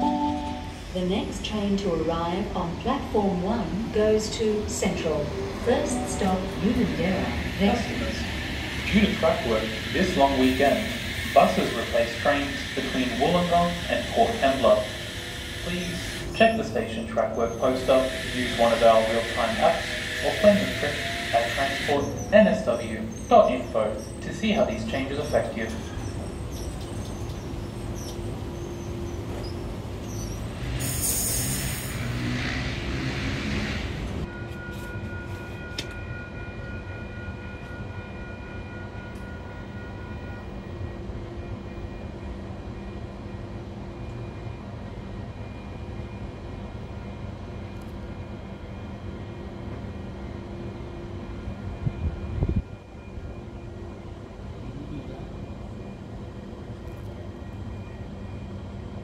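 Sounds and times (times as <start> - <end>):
train equipment humming: 0.0 - 59.0
loud air hiss: 17.8 - 22.0, 30.8 - 32.1.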